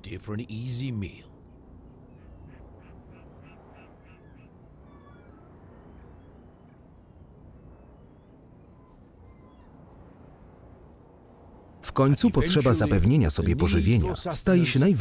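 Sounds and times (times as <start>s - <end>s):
steady low background noise: 0.0s - 15.0s
faint bird calls: 1.4s - 10.5s.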